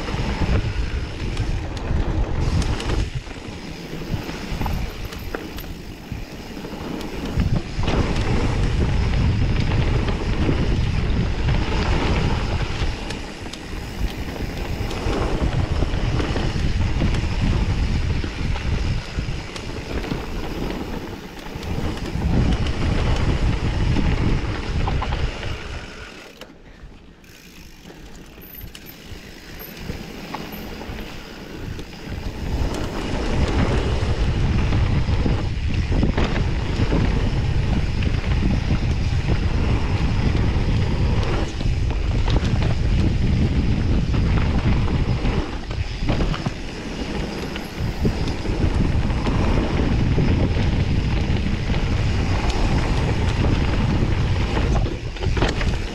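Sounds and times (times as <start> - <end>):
tyres rolling on dirt trail: 0.0 - 55.9
wind buffeting microphone: 0.0 - 55.9.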